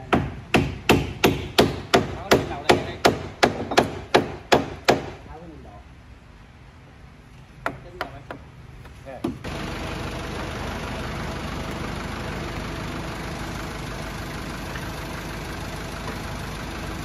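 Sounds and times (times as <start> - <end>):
hand hammer striking: 0.1 - 5.2.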